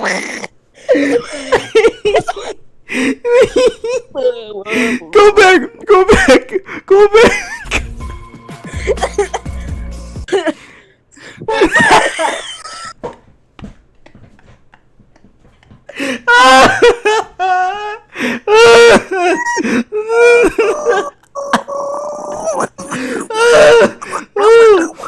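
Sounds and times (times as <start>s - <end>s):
people laughing hard: 0.0s - 4.9s, 5.9s - 7.9s, 8.6s - 9.7s, 11.4s - 13.0s, 14.1s - 21.7s.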